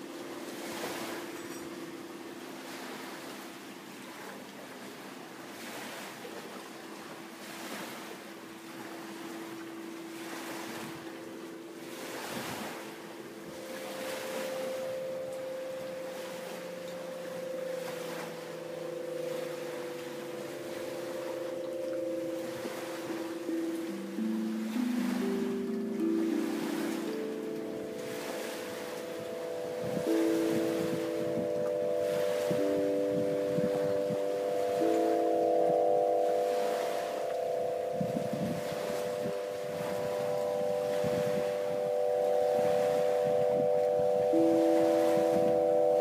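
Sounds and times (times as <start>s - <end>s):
wind harp droning tones: 0.0s - 46.0s
rushing wind noise: 28.1s - 34.9s, 37.7s - 46.0s.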